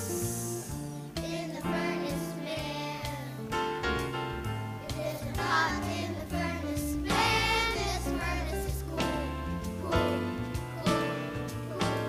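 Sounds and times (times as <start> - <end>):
instrumental accompaniment: 0.0 - 12.0
children singing: 1.2 - 3.4, 4.9 - 12.0
bass line: 4.1 - 12.0.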